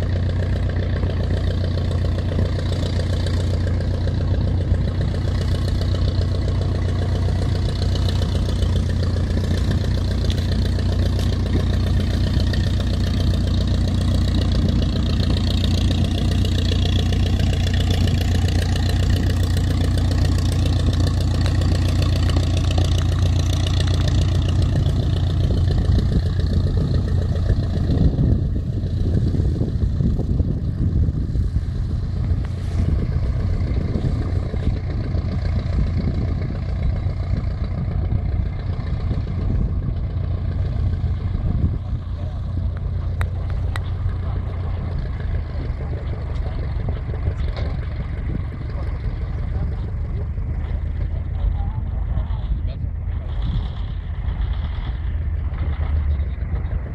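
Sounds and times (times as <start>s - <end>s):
biplane engine taxiing: 0.0s - 56.9s.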